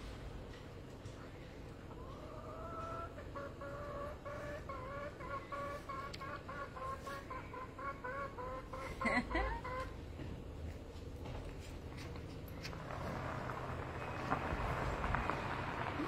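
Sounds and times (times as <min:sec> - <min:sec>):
hen clucking: 0:01.9 - 0:10.0.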